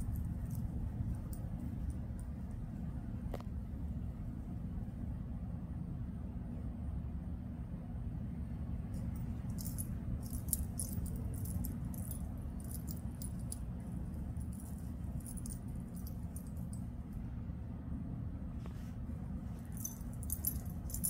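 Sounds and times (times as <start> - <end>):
steady low rumble: 0.0 - 21.0
dog tags jingling: 9.0 - 16.9, 19.7 - 21.0.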